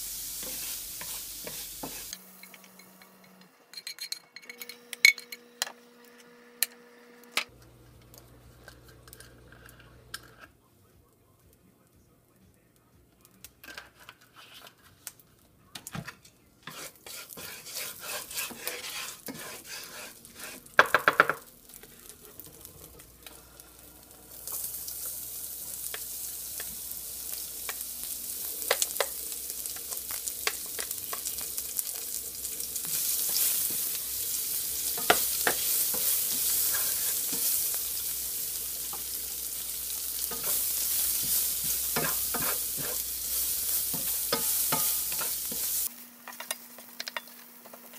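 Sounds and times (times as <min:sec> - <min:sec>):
onions sizzling in oil: 0:00.0 - 0:03.0, 0:16.7 - 0:47.8.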